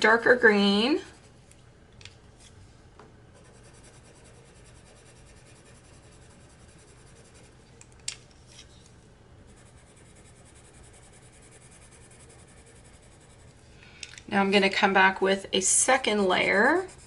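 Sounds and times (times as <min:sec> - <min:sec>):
pencil scratching on paper: 0:03.4 - 0:07.6, 0:09.5 - 0:13.6, 0:16.4 - 0:17.0.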